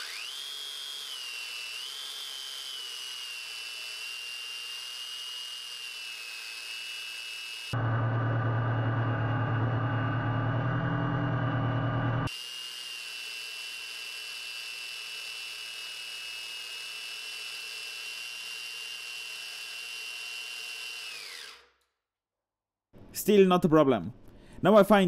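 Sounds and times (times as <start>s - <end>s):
motor and gearbox whine: 0.0s - 12.5s
loud low hum: 7.8s - 12.3s.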